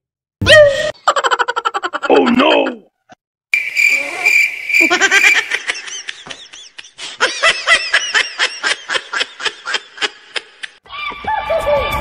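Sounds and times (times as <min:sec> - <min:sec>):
snickering laughter: 0:04.8 - 0:10.8.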